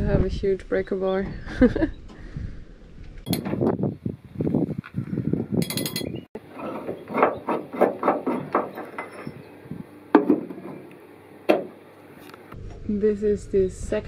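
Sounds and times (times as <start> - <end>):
sharp metal clink: 3.3 - 3.5, 5.6 - 6.2.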